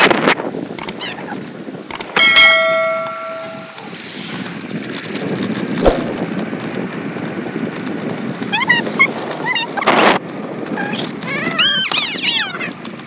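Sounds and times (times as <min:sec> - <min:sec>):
bell-like notification ding: 0:02.2 - 0:03.9.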